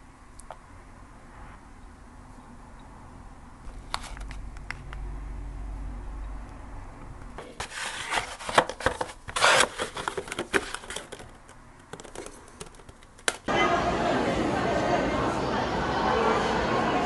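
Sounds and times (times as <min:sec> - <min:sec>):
paper crinkling: 0:07.4 - 0:11.4
wooden box clicks and rubbing: 0:07.4 - 0:13.4
crowd chatter: 0:13.5 - 0:17.0.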